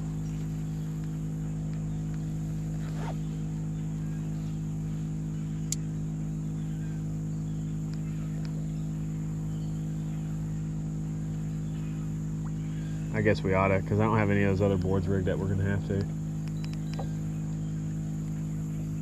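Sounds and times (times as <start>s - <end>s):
boat motor humming: 0.0s - 19.0s
sharp click: 5.7s - 5.9s, 16.0s - 17.2s.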